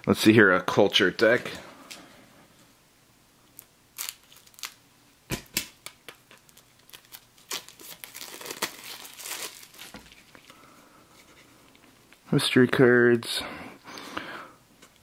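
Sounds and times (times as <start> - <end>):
plastic wrap crinkling torn: 3.6 - 10.5
plastic wrap crackling: 3.6 - 10.6.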